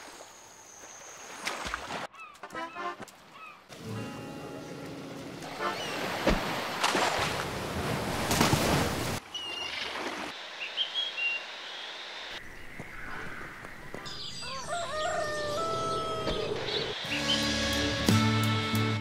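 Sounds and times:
rooster crowing: 0:14.4 - 0:16.9.

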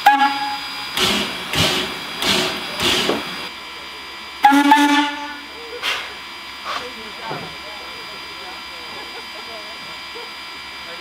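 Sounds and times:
steam whistle blast: 0:00.0 - 0:00.8, 0:04.4 - 0:05.5
steam locomotive exhaust chuffs: 0:00.0 - 0:11.0.

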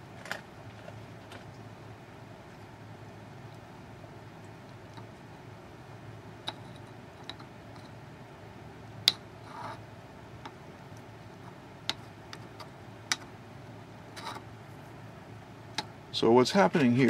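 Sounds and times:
steady low hum: 0:00.0 - 0:17.0
magnets clicking and tapping: 0:11.9 - 0:13.3.

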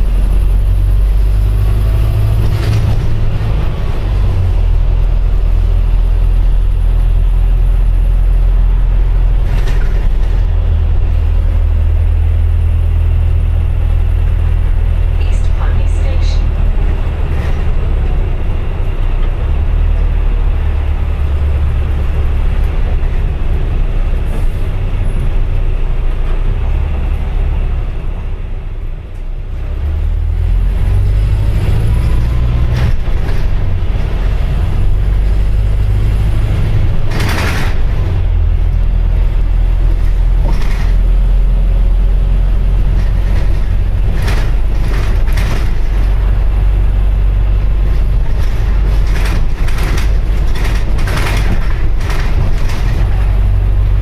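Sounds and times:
bus drivetrain and road drone: 0:00.0 - 0:54.0
rattles: 0:32.6 - 0:41.4, 0:42.7 - 0:46.9, 0:47.5 - 0:54.0.

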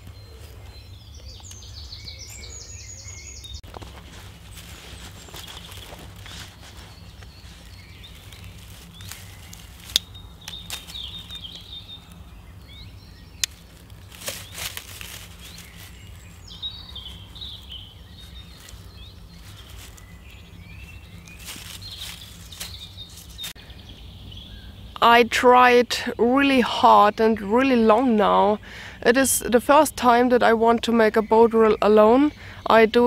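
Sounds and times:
rustling handling noise: 0:03.6 - 0:12.7, 0:13.3 - 0:23.6.

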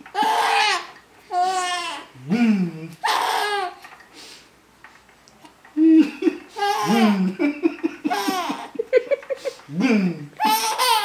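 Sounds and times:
baby laughing: 0:00.1 - 0:02.1, 0:03.0 - 0:03.8, 0:06.0 - 0:09.8, 0:10.4 - 0:11.0.

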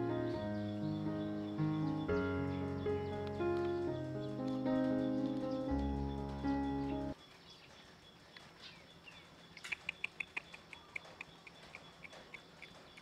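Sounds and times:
small animal chirping: 0:09.6 - 0:13.0.

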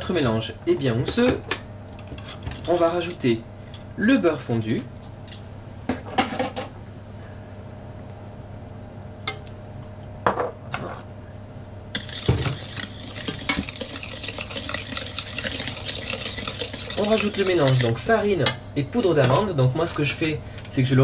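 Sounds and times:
batter stirred in plastic bowl: 0:12.0 - 0:18.3.

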